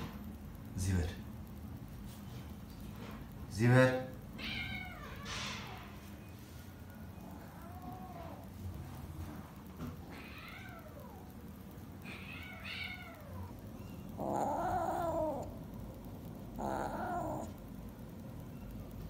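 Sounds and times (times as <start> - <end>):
cat meowing: 4.4 - 6.0, 7.2 - 8.5, 10.0 - 11.3, 12.0 - 15.6, 16.5 - 17.6.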